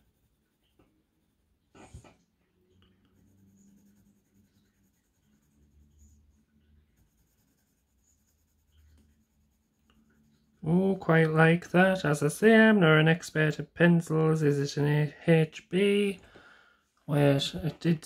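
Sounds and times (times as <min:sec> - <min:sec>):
pencil scratching on paper: 0:00.0 - 0:02.0, 0:02.9 - 0:10.8.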